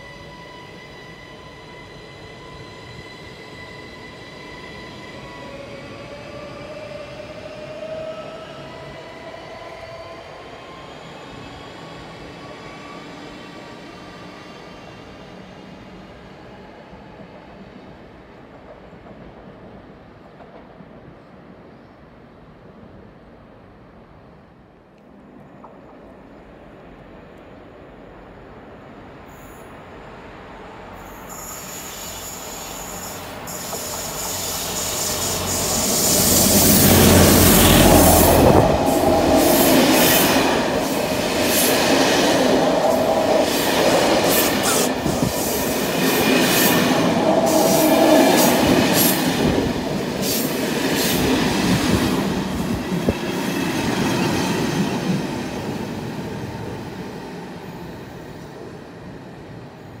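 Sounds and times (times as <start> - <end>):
train rumbling: 25.1 - 60.0.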